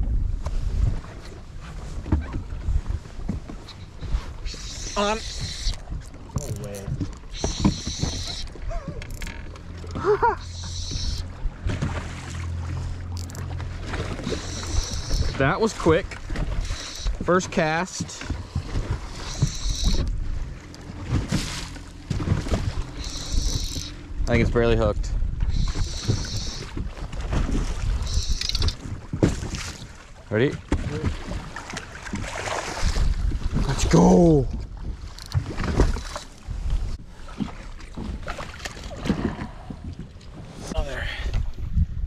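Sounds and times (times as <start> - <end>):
low wind rumble: 0.0 - 30.2, 30.8 - 42.0
water slapping boat hull: 0.0 - 41.8
fishing reel whirring: 4.4 - 11.3, 13.1 - 13.5, 14.2 - 15.4, 16.6 - 17.2, 19.1 - 20.1, 22.9 - 24.0, 25.5 - 26.8, 28.0 - 28.8, 35.1 - 35.4
wind noise: 22.2 - 29.6, 32.7 - 37.0, 38.9 - 42.0.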